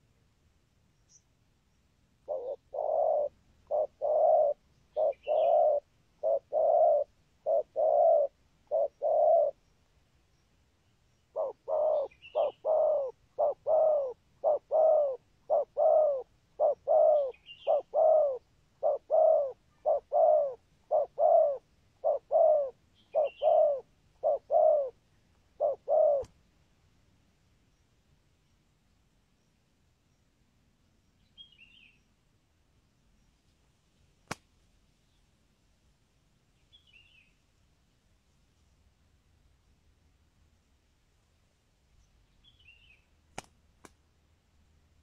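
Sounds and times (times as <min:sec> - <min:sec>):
dove cooing: 0:02.2 - 0:09.6, 0:11.3 - 0:26.4.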